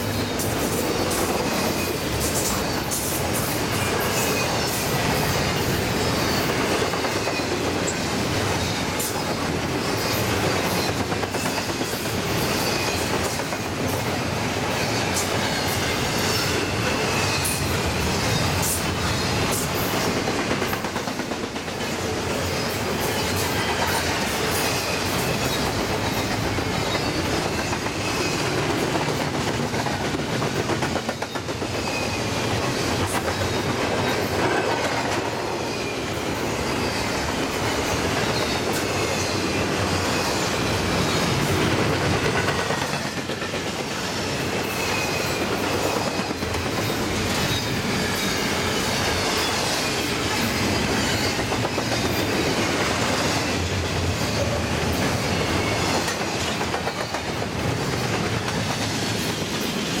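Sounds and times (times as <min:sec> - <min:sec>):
freight train rumbling past: 0:00.0 - 1:00.0
high wheel squeal: 0:00.2 - 0:13.1, 0:14.7 - 0:20.0, 0:31.7 - 0:33.8, 0:44.3 - 0:52.4.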